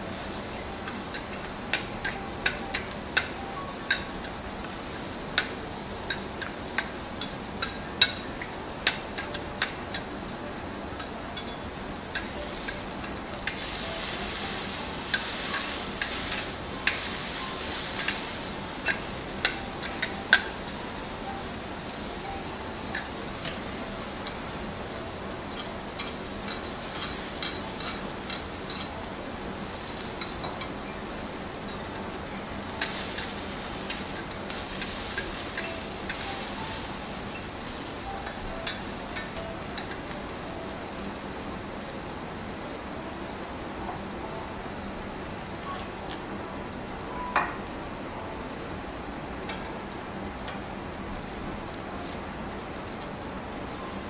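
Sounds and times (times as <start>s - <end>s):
food sizzling on griddle: 0.0s - 54.0s
metal spatulas scraping griddle: 25.5s - 29.0s.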